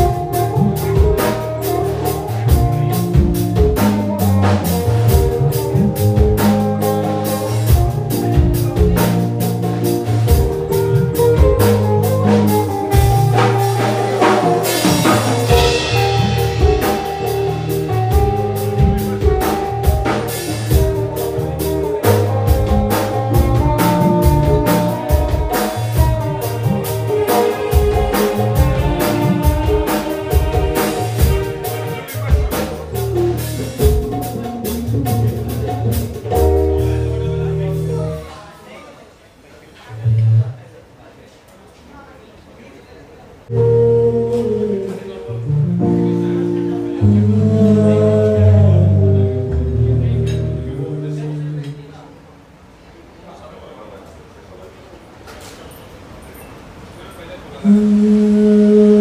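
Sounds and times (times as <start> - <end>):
background music with drums and bass: 0.0 - 38.2, 43.5 - 51.1.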